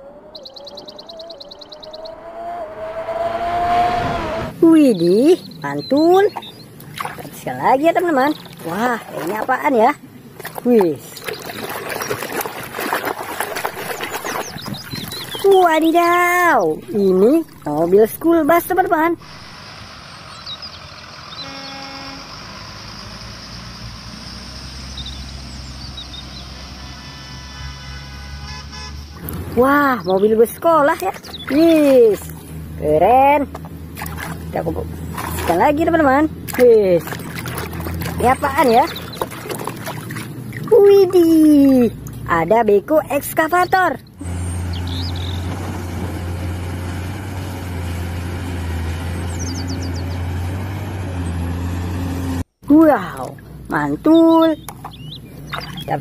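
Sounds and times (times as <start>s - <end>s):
bird chirping: 0.0s - 3.9s, 4.8s - 9.0s, 13.7s - 19.4s, 20.0s - 21.8s, 22.8s - 26.7s, 28.9s - 32.8s, 34.6s - 42.5s, 43.1s - 45.5s, 49.2s - 50.3s, 53.7s - 56.0s
diesel buses pulling away: 0.0s - 4.6s, 16.0s - 36.5s, 44.1s - 52.6s.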